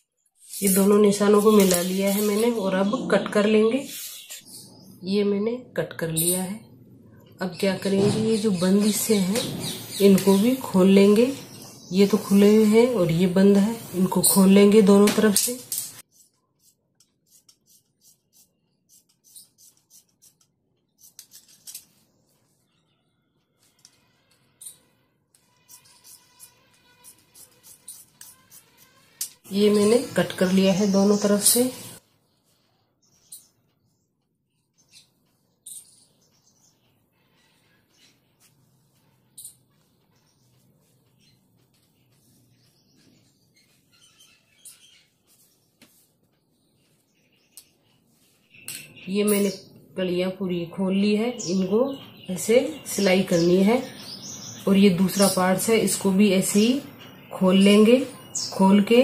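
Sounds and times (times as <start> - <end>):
shears snipping fabric: 0.4 - 2.6, 25.4 - 29.4.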